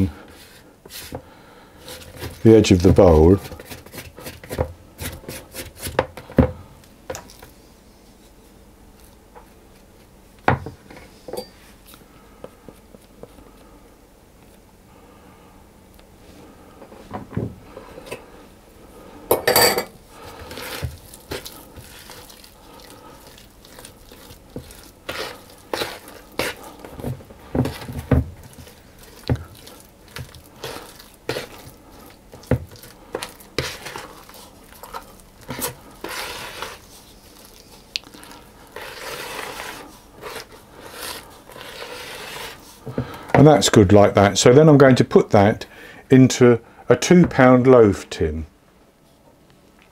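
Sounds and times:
wooden spoon scraping a bowl: 1.8s - 6.3s, 19.5s - 37.8s, 38.6s - 43.2s.

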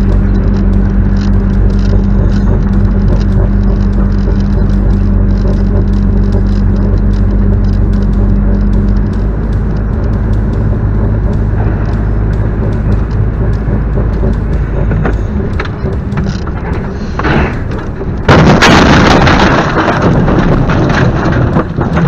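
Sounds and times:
car road and engine noise: 0.0s - 22.0s
loud rough noise: 0.0s - 22.0s
loud car crash: 17.2s - 22.0s.

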